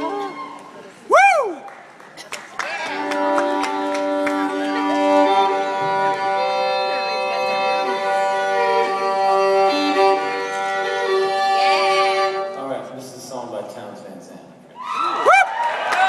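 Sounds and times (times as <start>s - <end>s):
sliding violin notes: 2.9s - 12.7s
violin drone chord: 3.0s - 12.6s.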